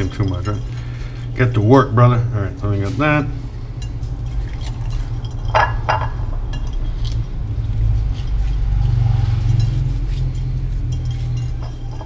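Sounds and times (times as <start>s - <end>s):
metal bowl clinks: 0.0s - 0.9s, 4.6s - 7.2s
steady low hum: 0.0s - 12.0s
hands rubbing raw chicken: 6.9s - 12.0s.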